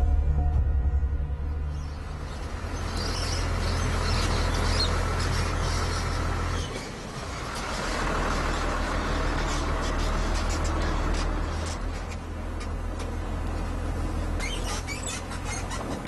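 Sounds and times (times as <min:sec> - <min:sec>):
truck engine passing by: 0:00.0 - 0:12.2.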